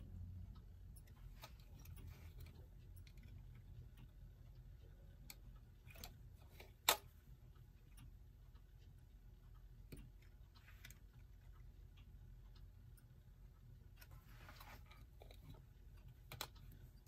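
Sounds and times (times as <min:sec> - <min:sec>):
tool clicking on clock hand: 0:00.6 - 0:14.2.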